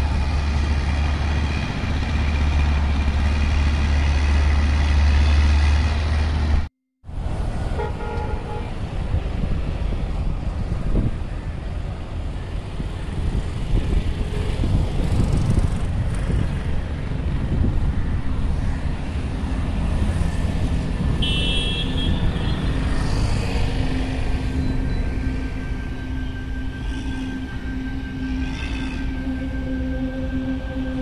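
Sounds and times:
road traffic rumble: 0.0s - 31.0s
vehicle horn toot: 7.8s - 8.7s, 21.2s - 22.7s.

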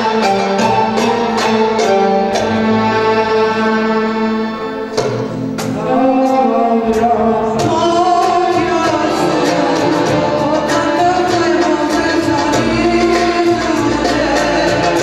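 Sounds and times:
accordion: 0.0s - 15.0s
violins: 0.0s - 15.0s
woman singing: 5.7s - 15.0s.

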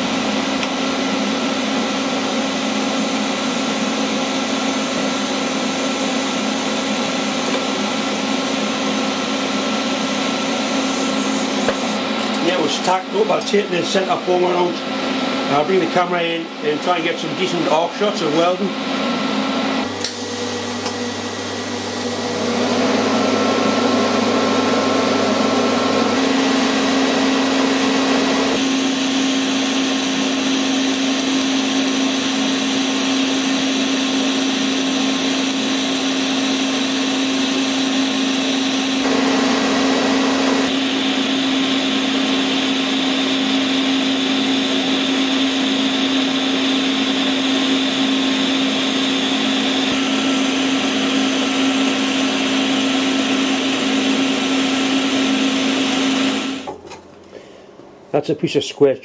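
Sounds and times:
welder hum: 0.0s - 18.7s, 19.8s - 56.8s
welding arc hissing and buzzing: 28.6s - 31.8s, 40.7s - 42.8s.

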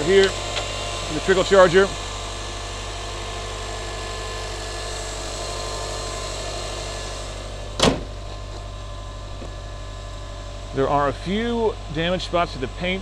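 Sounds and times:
car engine idling: 0.0s - 13.0s
car hood slamming shut: 7.8s - 8.4s.

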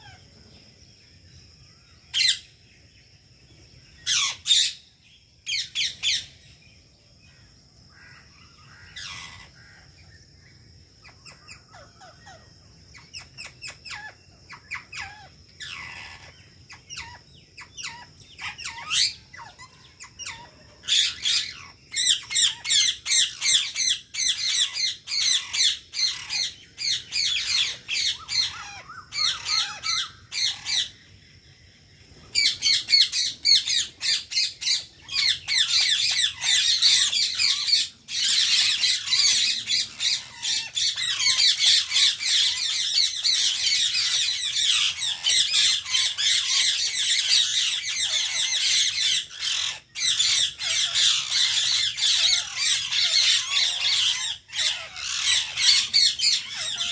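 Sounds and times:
parakeets squawking: 2.1s - 2.5s, 4.0s - 4.9s, 8.1s - 9.6s, 13.0s - 31.2s, 32.1s - 56.9s.

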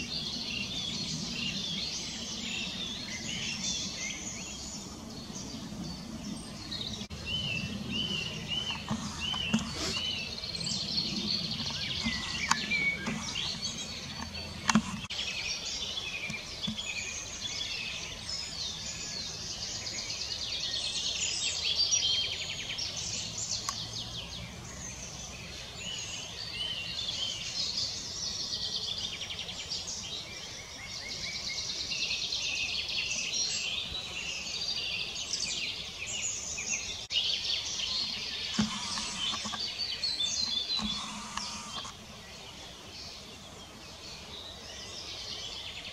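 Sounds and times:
songbirds singing: 0.0s - 45.9s
sharp clicks: 8.6s - 10.0s, 11.6s - 15.1s, 38.5s - 39.7s, 40.4s - 42.0s.

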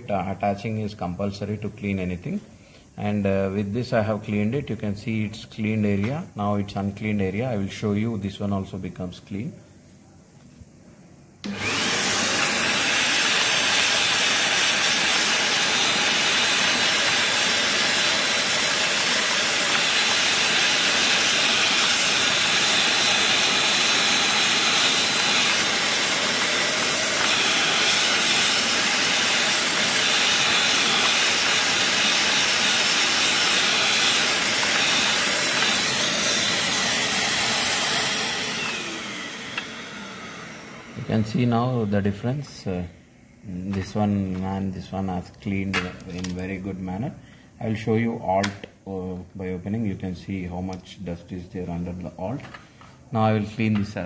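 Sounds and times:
handheld vacuum cleaner running: 11.4s - 42.0s.

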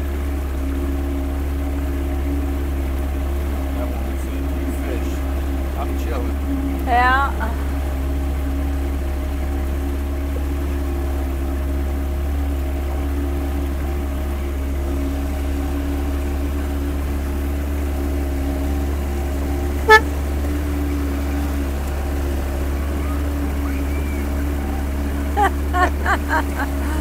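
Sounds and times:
motorboat engine running: 0.0s - 27.0s
short horn toot: 19.6s - 20.6s.

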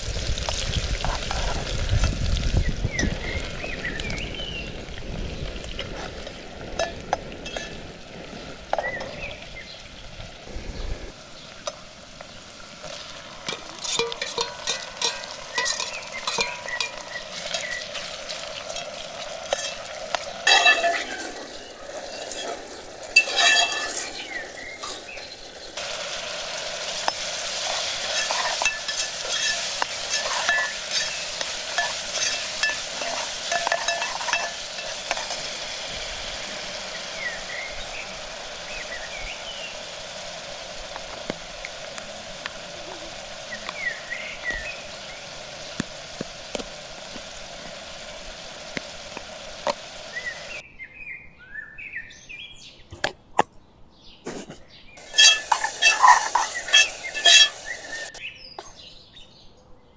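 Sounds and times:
food sizzling in pot: 0.0s - 50.6s, 54.3s - 58.9s
spoon scraping metal pot: 13.5s - 17.7s, 18.6s - 25.8s, 27.0s - 35.5s, 54.3s - 58.7s.

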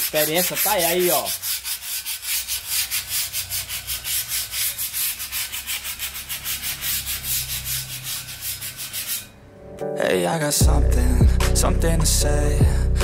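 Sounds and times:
sandpaper rubbing on bare metal: 0.0s - 9.3s.

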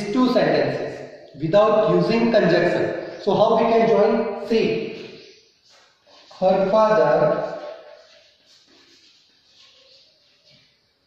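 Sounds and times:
chalk scratching on blackboard: 7.5s - 10.8s.

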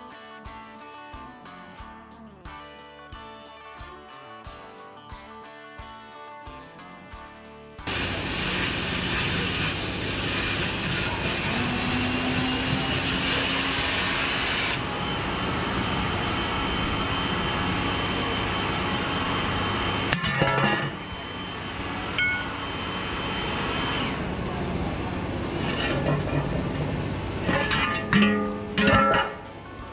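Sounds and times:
cutting torch hissing: 7.9s - 20.2s, 20.8s - 24.3s.

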